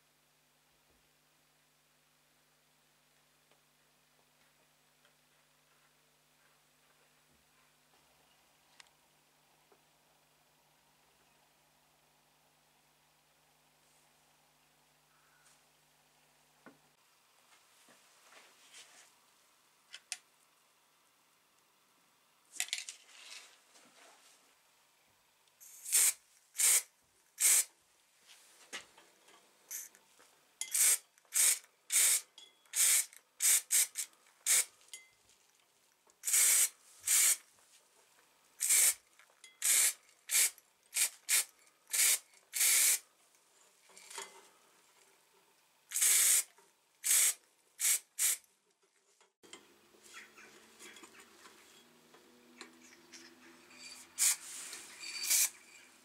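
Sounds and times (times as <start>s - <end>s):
spray can hissing: 25.6s - 27.7s, 29.7s - 29.9s, 30.7s - 34.7s, 36.2s - 37.4s, 38.6s - 39.0s, 39.6s - 43.0s, 45.9s - 48.4s, 54.2s - 55.6s.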